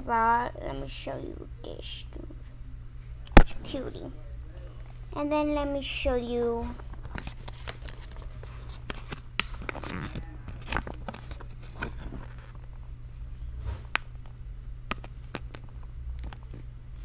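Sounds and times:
steady low hum: 0.0s - 17.0s
paper rustling: 6.9s - 12.7s.

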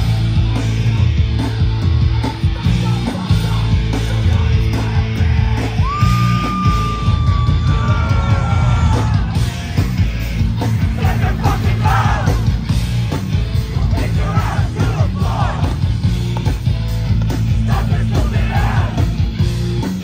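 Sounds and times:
hardcore band playing loud: 0.0s - 20.0s
shouted vocals: 5.1s - 9.5s, 10.8s - 12.5s, 13.8s - 15.8s, 17.6s - 19.2s.

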